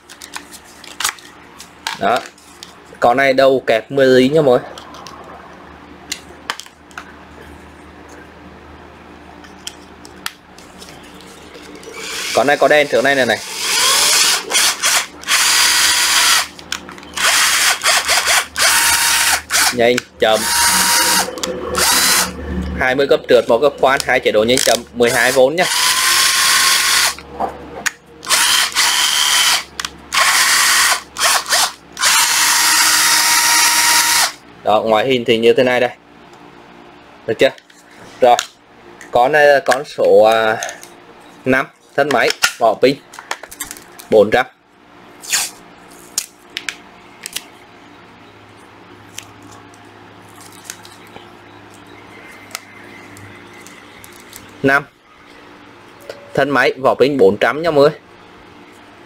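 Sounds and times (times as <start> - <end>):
cordless drill motor whining: 11.9 - 12.4, 13.4 - 16.5, 17.2 - 19.8, 20.4 - 22.3, 25.6 - 27.2, 28.3 - 34.4.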